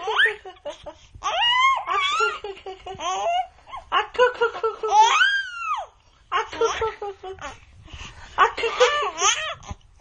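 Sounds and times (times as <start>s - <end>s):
baby laughing: 0.0s - 7.6s, 8.5s - 9.8s
baby squealing: 4.9s - 5.9s.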